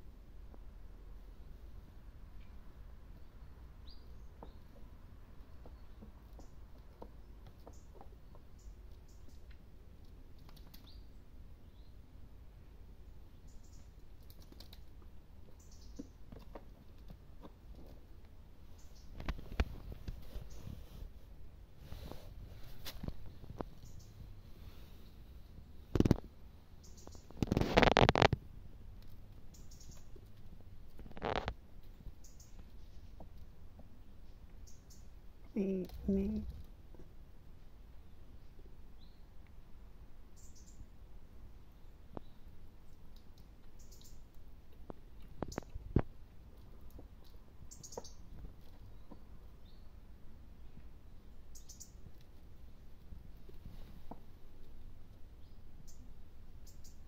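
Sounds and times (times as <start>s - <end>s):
goat snuffling and snorting: 19.3s - 25.4s.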